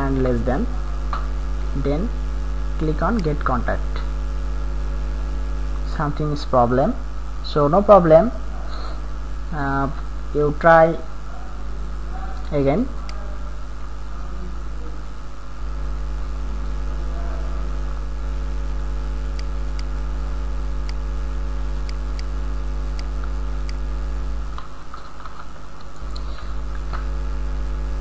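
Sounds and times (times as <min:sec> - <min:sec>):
electrical mains hum: 0:00.0 - 0:28.0
faint clicks: 0:20.8 - 0:21.0, 0:22.9 - 0:23.9.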